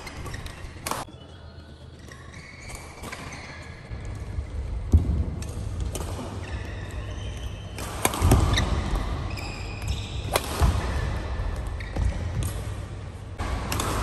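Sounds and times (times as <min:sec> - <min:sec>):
shoes squeaking on court: 0:00.0 - 0:04.4, 0:05.8 - 0:13.0
rackets striking shuttlecock: 0:04.2 - 0:14.0.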